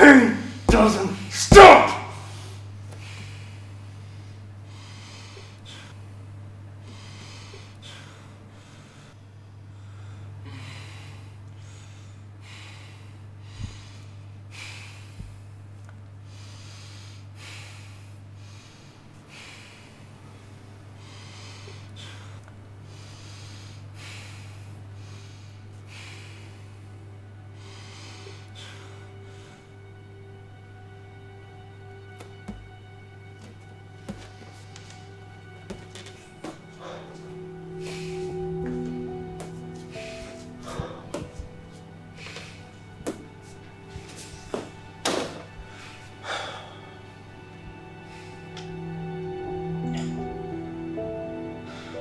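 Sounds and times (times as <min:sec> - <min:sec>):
low steady hum: 0:00.0 - 0:52.0
person breathing hard: 0:02.2 - 0:30.0, 0:34.1 - 0:52.0.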